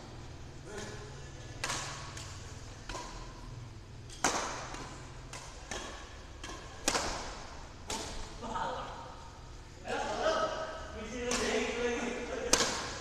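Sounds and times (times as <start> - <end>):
racket hitting shuttlecock: 0.6 - 9.0, 11.2 - 13.0.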